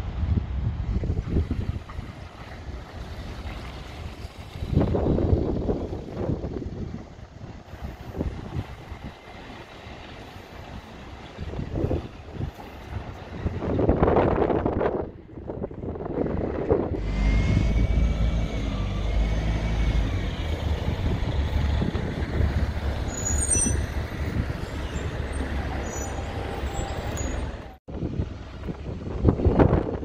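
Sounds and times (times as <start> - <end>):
diesel bus engine running: 15.7 - 30.0
high-pitched brake squeals: 17.0 - 21.0, 23.0 - 27.8.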